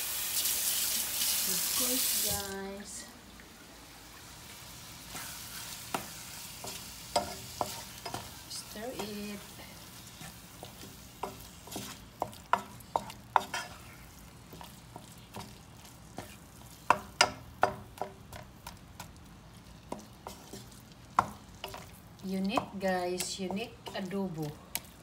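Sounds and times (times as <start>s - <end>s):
food sizzling in pan: 0.0s - 25.0s
spatula scraping frying pan: 5.1s - 18.7s, 19.6s - 24.2s.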